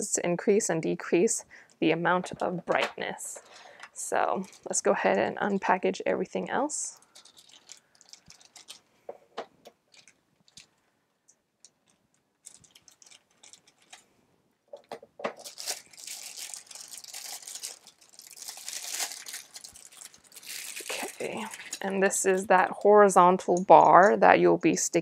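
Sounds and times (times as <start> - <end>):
plastic bags rustling and clicking: 1.8 - 5.8, 6.6 - 14.1, 14.7 - 24.2
plastic bag crinkling and tearing: 2.3 - 5.8, 7.0 - 8.9, 9.9 - 10.8, 11.6 - 14.1, 15.3 - 23.0.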